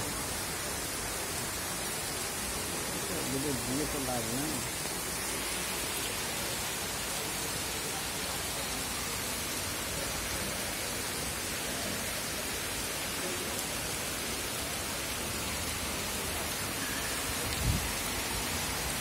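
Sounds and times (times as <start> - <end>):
heavy rain falling: 0.0 - 19.0.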